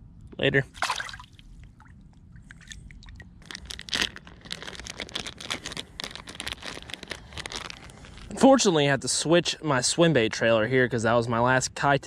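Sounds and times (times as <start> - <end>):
light crackles: 2.5 - 8.3
rustling and crinkling: 3.4 - 8.3.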